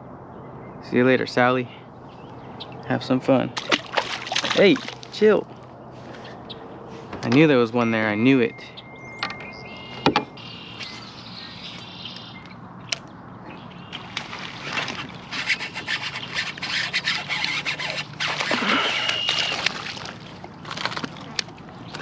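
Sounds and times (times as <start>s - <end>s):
fish splashing in water: 3.6s - 5.2s, 13.9s - 22.0s.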